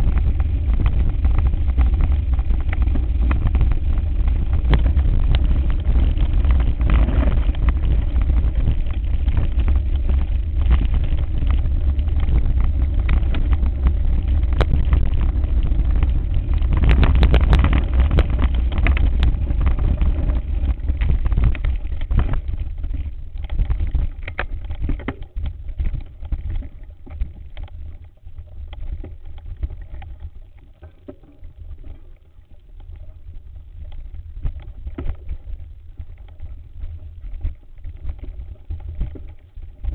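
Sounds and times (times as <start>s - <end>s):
bike rattling over rough ground: 0.0s - 30.5s
wind rumbling on microphone: 0.0s - 39.9s.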